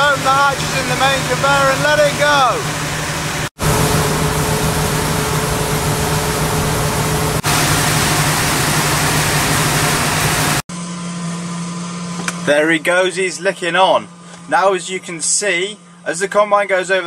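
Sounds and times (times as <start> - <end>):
conveyor humming: 0.0 - 10.6
grain pouring rushing hiss: 3.6 - 10.6.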